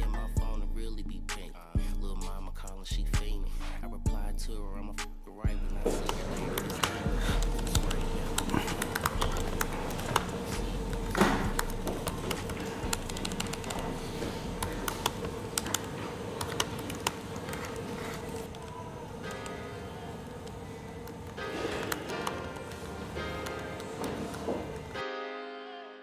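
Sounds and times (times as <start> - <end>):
steady hum: 0.0 - 25.0.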